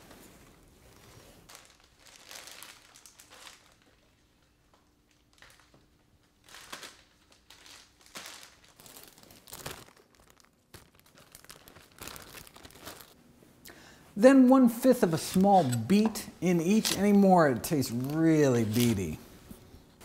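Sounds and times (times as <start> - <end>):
plastic bags crinkling: 1.0 - 13.2.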